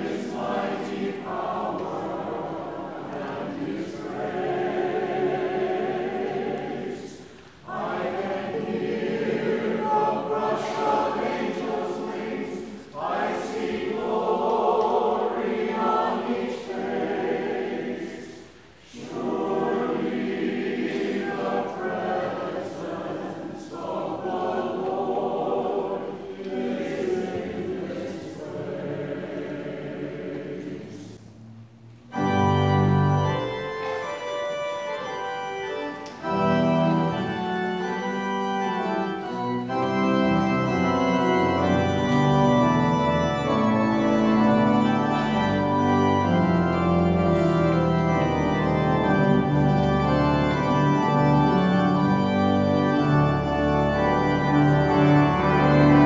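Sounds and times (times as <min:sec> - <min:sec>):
church choir singing: 0:00.0 - 0:56.0
organ holding a loud chord: 0:32.1 - 0:56.0.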